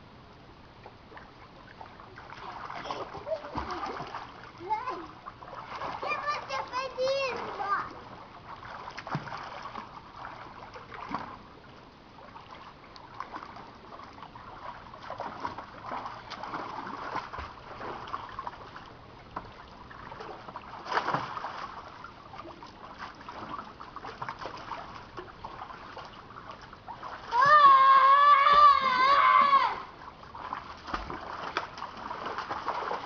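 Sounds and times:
pool water splashing: 0.0 - 33.0.

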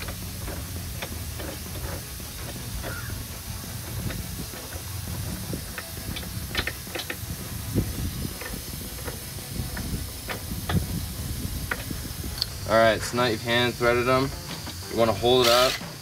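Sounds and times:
background hiss: 0.0 - 16.0
small metallic clicks and taps: 5.7 - 7.2.

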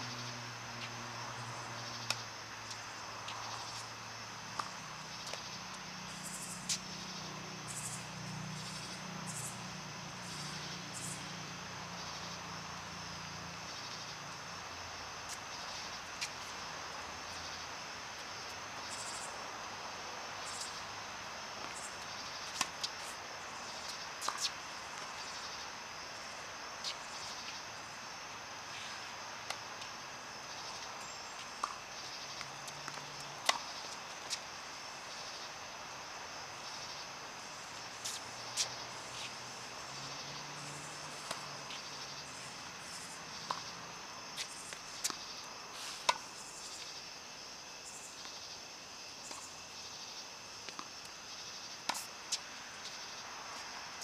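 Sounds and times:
insects chirping: 0.0 - 54.0
tennis balls struck by racquets: 21.6 - 27.5, 28.8 - 34.5, 43.3 - 43.7.

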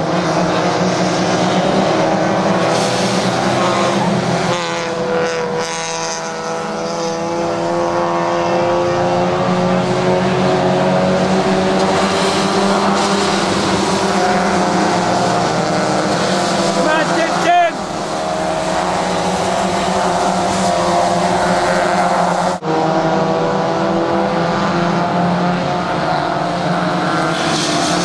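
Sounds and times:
car accelerating past: 0.0 - 28.0
race car engines running hard: 0.0 - 28.0.

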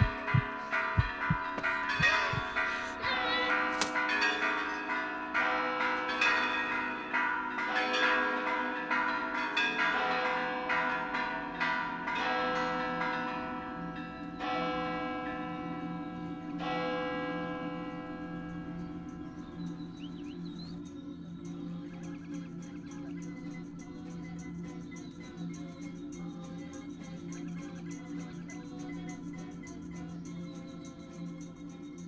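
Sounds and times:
low steady tone: 0.0 - 3.1
church bells ringing: 0.0 - 22.9.

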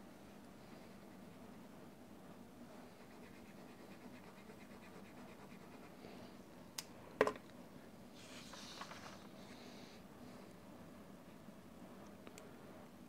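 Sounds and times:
paper sliding across table: 8.2 - 9.6.

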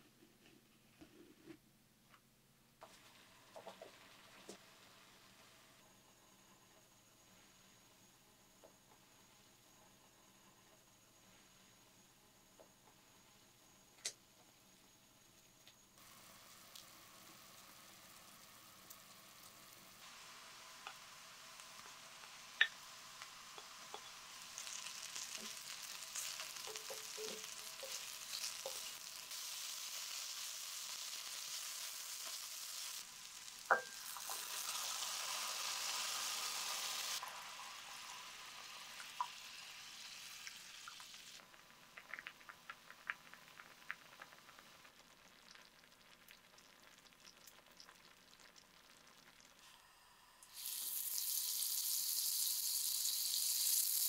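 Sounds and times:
butter sizzling in pan: 2.8 - 5.8, 16.0 - 54.0
onions and mushrooms sizzling: 2.8 - 5.9, 16.0 - 54.0
quiet bubbling: 40.4 - 49.6.

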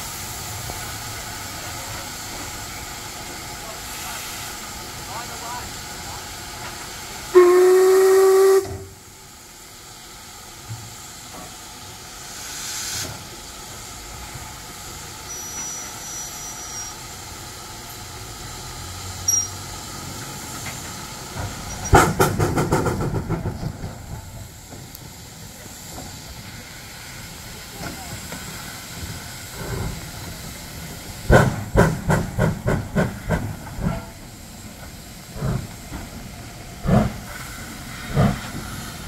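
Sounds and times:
steam hissing: 0.0 - 39.0
steam locomotive whistle: 7.3 - 9.0, 15.3 - 17.0.

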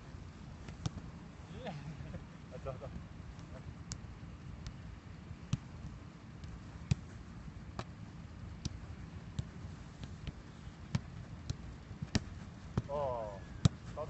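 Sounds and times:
low background noise: 0.0 - 14.0
boot kicking football: 8.6 - 14.0.

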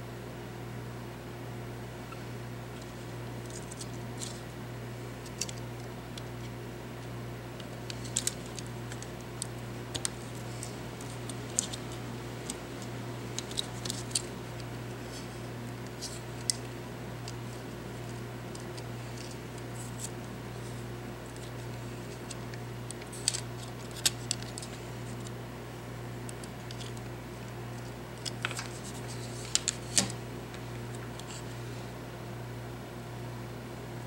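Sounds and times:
clicks of plastic parts handled: 5.2 - 6.5, 7.6 - 14.7, 21.3 - 25.3, 26.2 - 27.1, 27.8 - 31.4.

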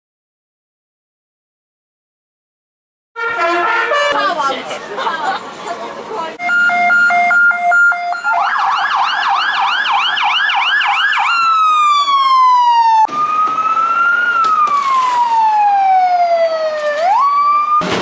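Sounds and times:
fire engine siren: 6.4 - 18.0.

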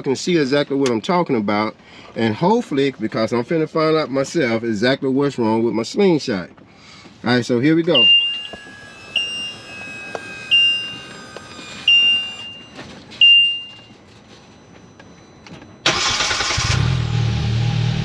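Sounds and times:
short electronic warning beeps: 7.9 - 15.8.

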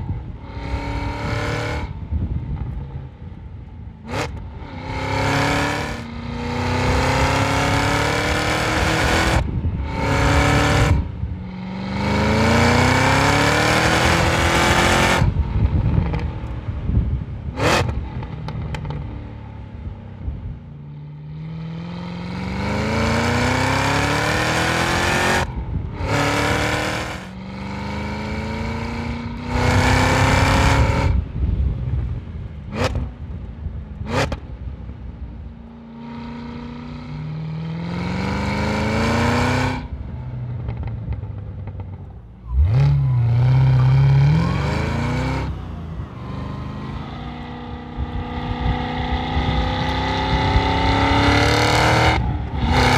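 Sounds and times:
car exhaust accelerating hard: 0.0 - 35.4, 36.0 - 52.9.

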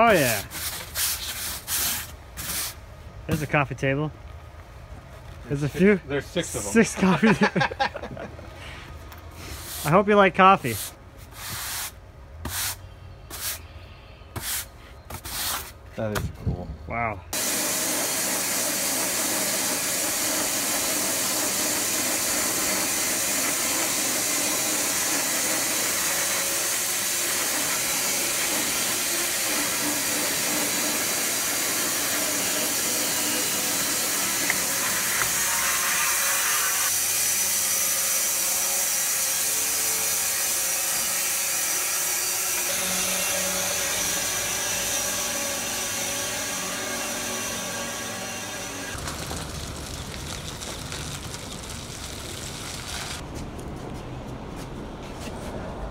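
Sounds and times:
saw blade cutting log: 10.6 - 13.6, 17.4 - 49.0.

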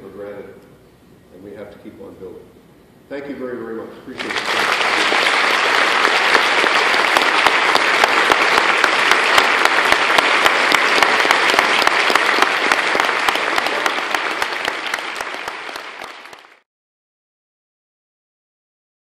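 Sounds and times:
audience applauding: 4.2 - 16.6.

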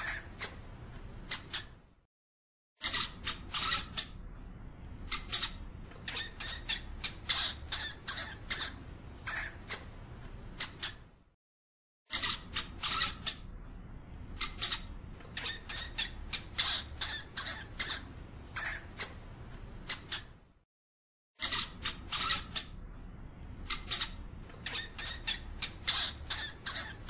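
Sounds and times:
hamster squeaking: 0.0 - 0.6, 1.2 - 1.8, 2.8 - 4.2, 5.1 - 10.0, 10.6 - 11.1, 12.1 - 13.5, 14.4 - 19.2, 19.8 - 20.4, 21.4 - 22.8, 23.6 - 27.0.

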